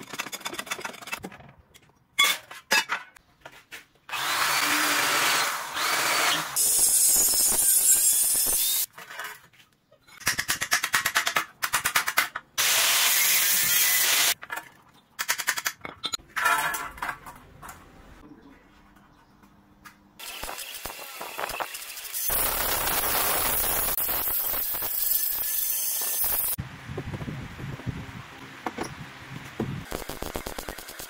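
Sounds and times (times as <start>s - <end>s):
metal strips scraping and rasping: 0.0s - 1.2s.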